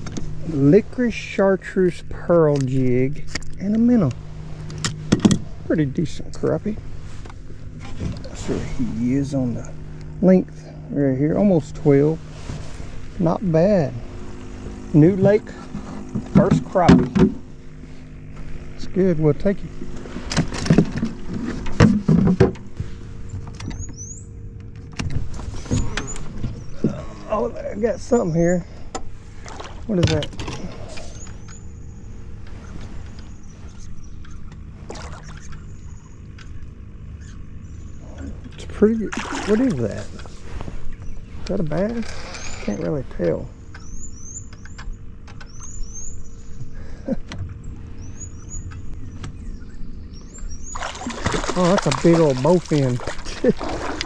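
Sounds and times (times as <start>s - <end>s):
low rumble: 0.0s - 54.0s
steady low hum: 0.0s - 54.0s
knocks and clattering of gear: 2.4s - 5.6s, 19.8s - 27.2s, 28.8s - 31.7s.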